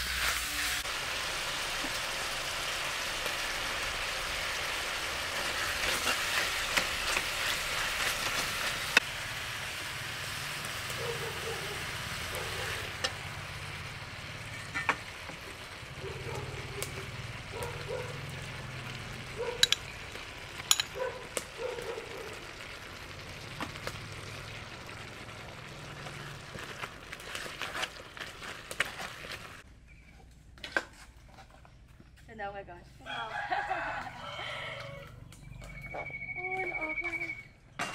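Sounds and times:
curry sizzling in a pot: 0:00.0 - 0:29.7
ladle clinking and scraping pot: 0:14.4 - 0:15.1, 0:19.6 - 0:21.0.

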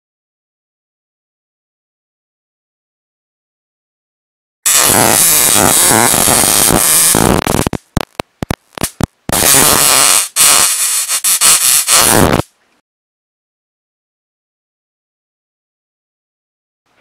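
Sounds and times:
electric arc buzzing: 0:04.7 - 0:12.5
short electric zaps: 0:04.7 - 0:12.5.

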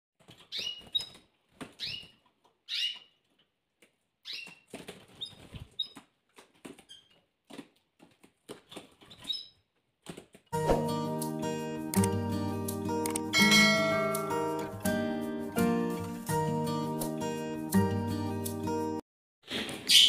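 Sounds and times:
birds tapping and rustling: 0:00.2 - 0:10.5
canaries chirping: 0:00.3 - 0:03.3, 0:04.2 - 0:06.0, 0:09.0 - 0:09.6.

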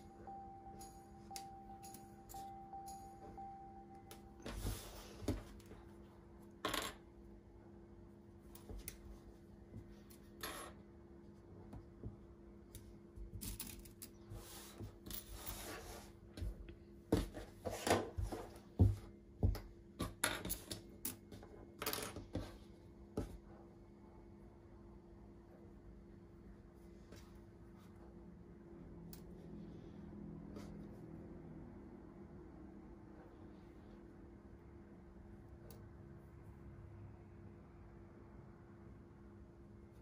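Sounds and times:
faint steady hum: 0:00.0 - 0:40.0.

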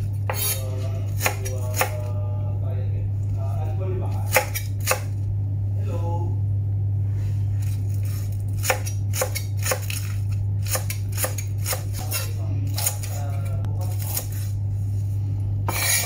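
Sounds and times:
low hum: 0:00.0 - 0:16.0
knife chopping on wooden board: 0:00.2 - 0:02.0, 0:04.3 - 0:05.1, 0:08.6 - 0:13.0, 0:15.7 - 0:16.0.

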